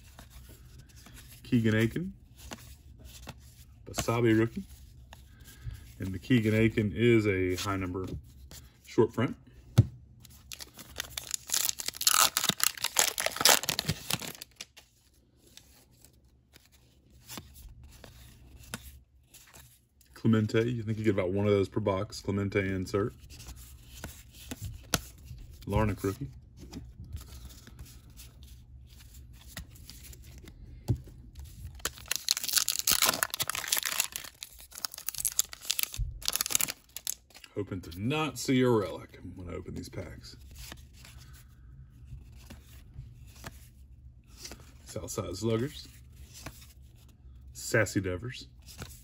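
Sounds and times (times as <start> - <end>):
cards rustling and ticking: 0.0 - 8.8, 10.2 - 21.1, 22.8 - 38.1, 39.8 - 47.4
card pack wrapper tearing: 10.4 - 14.7, 31.7 - 37.3.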